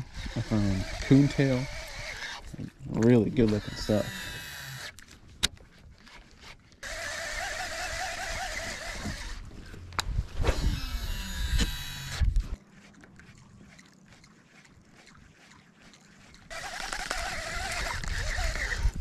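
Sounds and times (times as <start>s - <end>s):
fishing reel cranking whir: 0.0s - 2.6s, 3.4s - 5.0s, 6.0s - 9.7s, 10.5s - 12.6s, 16.5s - 19.0s.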